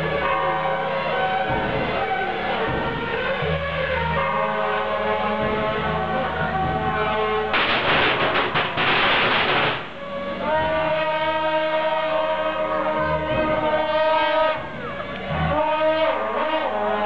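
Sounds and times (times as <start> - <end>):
shawms playing held notes: 0.0 - 17.0
firecrackers crackling: 7.5 - 10.6.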